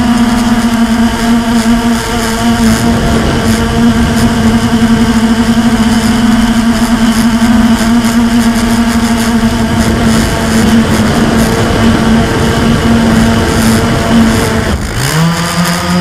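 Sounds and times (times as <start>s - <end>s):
drone motors buzzing: 0.0s - 16.0s
rush of air: 8.6s - 15.0s.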